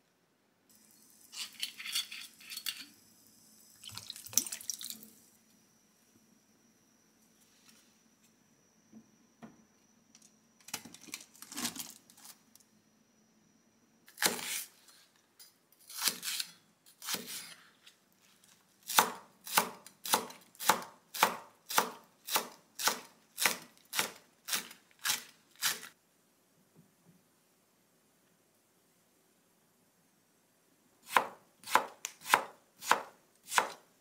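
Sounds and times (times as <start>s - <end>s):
knife chopping on cutting board: 31.1s - 33.8s.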